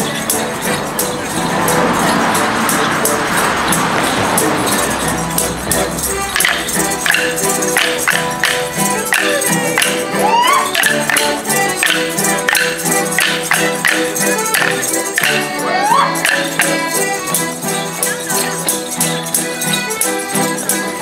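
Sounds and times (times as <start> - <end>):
folk band playing dance tune: 0.0 - 21.0
sharp percussive strokes: 0.0 - 21.0
person whooping: 10.2 - 10.8, 15.7 - 16.2.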